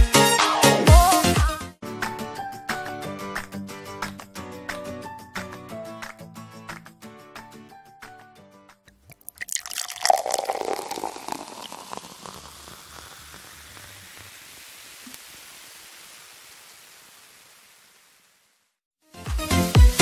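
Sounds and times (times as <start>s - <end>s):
water rushing: 9.2s - 18.2s.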